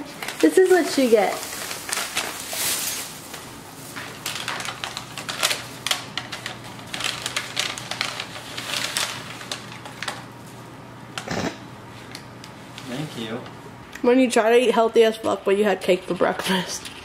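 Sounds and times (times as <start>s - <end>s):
paper bag rustling: 0.0s - 10.7s.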